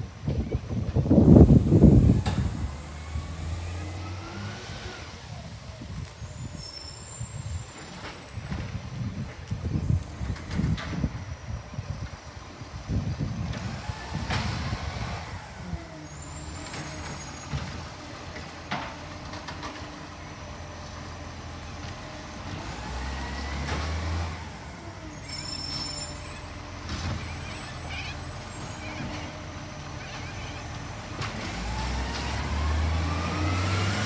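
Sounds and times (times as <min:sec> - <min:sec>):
garbage truck diesel engine: 0:00.0 - 0:34.0
air-brake hiss: 0:05.4 - 0:08.5.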